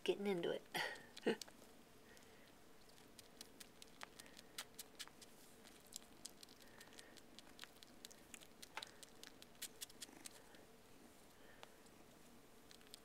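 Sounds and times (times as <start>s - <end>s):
kitten suckling clicks and smacks: 1.0s - 10.6s, 12.6s - 13.0s.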